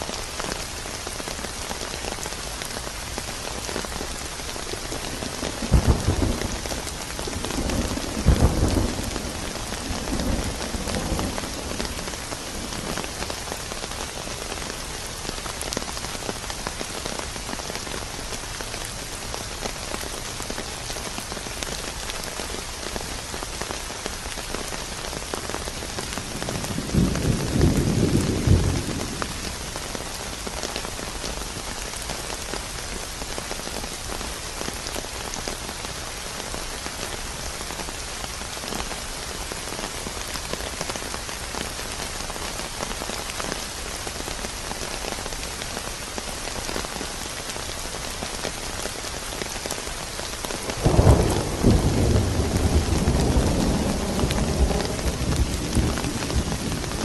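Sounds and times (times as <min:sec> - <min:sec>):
heavy rain: 0:00.0 - 0:57.0
thunder rumbling: 0:05.0 - 0:13.4, 0:26.2 - 0:29.7, 0:50.5 - 0:57.0.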